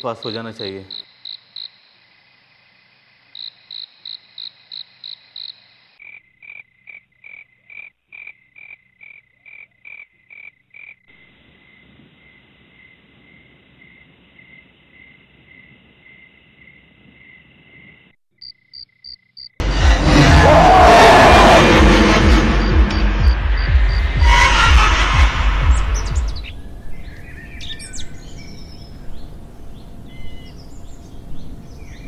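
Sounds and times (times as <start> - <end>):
loud burst of music: 19.6 - 26.5.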